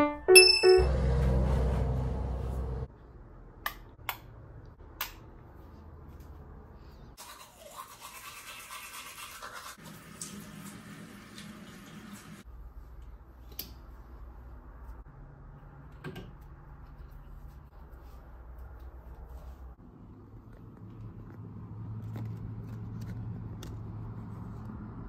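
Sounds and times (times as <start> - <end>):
loud low rumble: 0.8 - 2.9
tooth-brushing scrubbing: 7.2 - 9.8.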